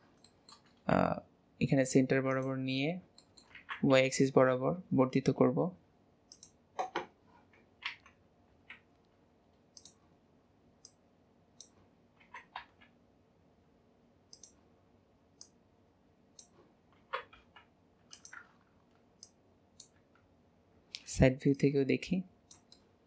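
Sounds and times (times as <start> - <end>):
computer mouse clicks: 0.1 - 0.8, 2.3 - 2.5, 3.1 - 3.8, 6.3 - 7.1, 7.8 - 10.1, 10.8 - 11.0, 11.6 - 13.0, 14.3 - 14.6, 15.4 - 15.6, 16.4 - 20.3, 22.4 - 22.9.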